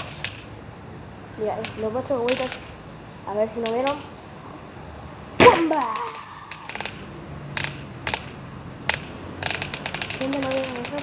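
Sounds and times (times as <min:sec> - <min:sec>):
board clacking onto concrete: 0:05.6 - 0:11.0.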